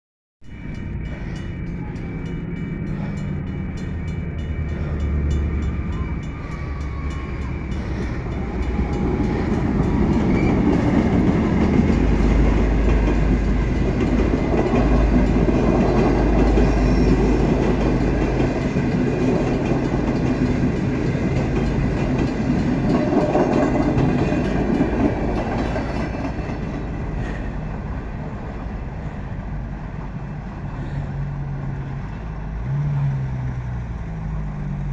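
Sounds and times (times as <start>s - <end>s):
locomotive engine rumble: 0.5s - 34.9s
train wheels clattering over rail joints: 7.9s - 27.6s.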